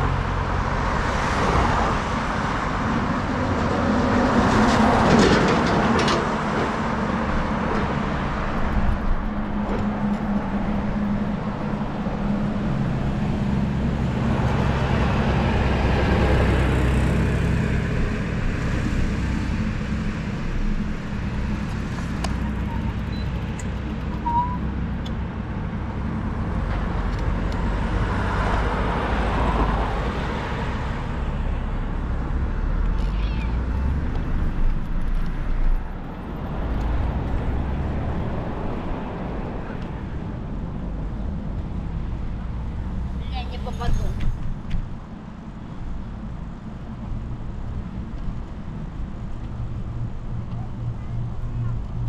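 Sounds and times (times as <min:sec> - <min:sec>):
cars driving past: 0:00.0 - 0:52.0
low rumble of traffic: 0:00.0 - 0:52.0.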